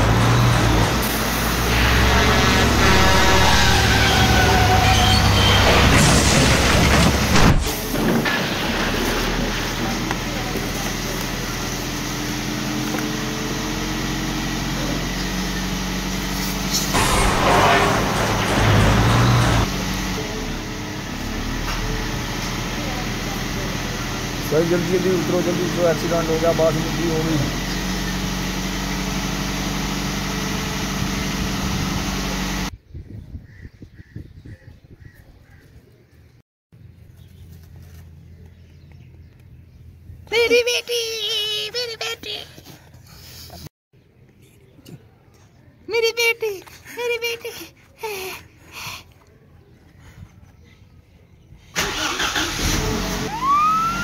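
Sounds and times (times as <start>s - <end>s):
loud engine drone: 0.0s - 32.7s, 51.8s - 54.0s
steady motor hum: 8.7s - 32.7s.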